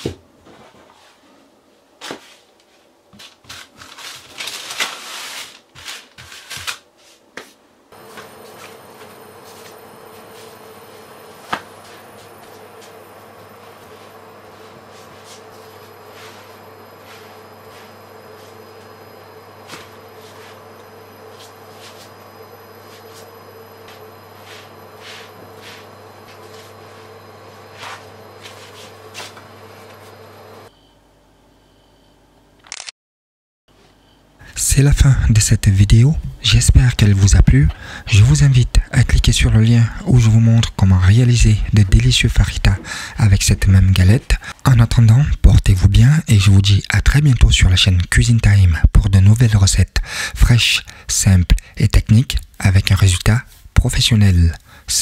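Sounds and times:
steady electrical hum: 0.0 - 32.6, 33.7 - 55.0
dough rustling and rubbing on paper: 3.2 - 10.6, 23.9 - 29.4.

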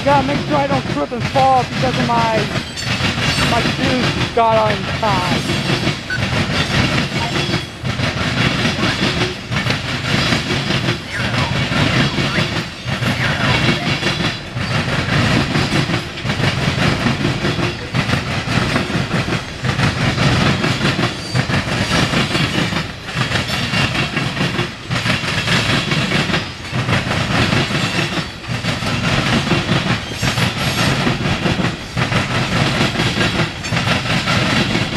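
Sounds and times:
train wheels rumbling and clattering: 0.0 - 34.9.

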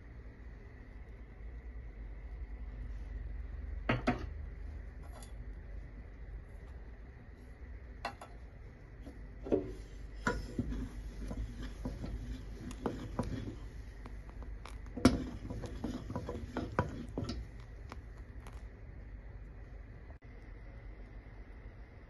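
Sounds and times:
spatula scraping a steel pan: 9.6 - 14.1, 14.7 - 17.5.

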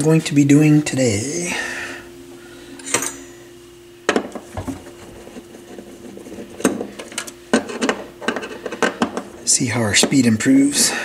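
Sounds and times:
faint steady hum: 0.0 - 11.0
turntable parts clicking and knocking: 6.5 - 9.3.

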